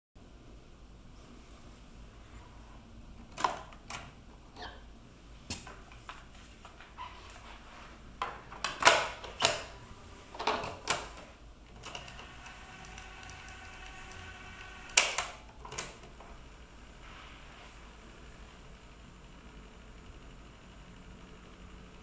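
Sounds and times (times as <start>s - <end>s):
cassette deck mechanical clicks: 14.8s - 16.2s.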